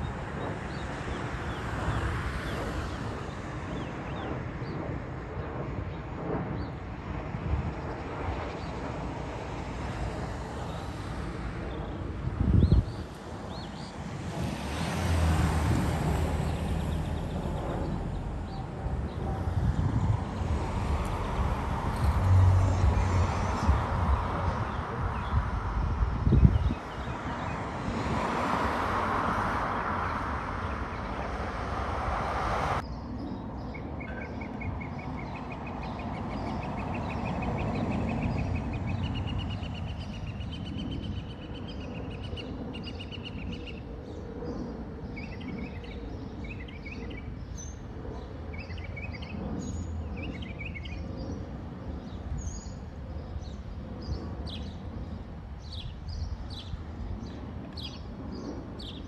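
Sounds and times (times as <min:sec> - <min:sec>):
distant aircraft rumble: 0:00.0 - 0:59.0
jet aircraft rushing overhead: 0:00.0 - 0:59.0.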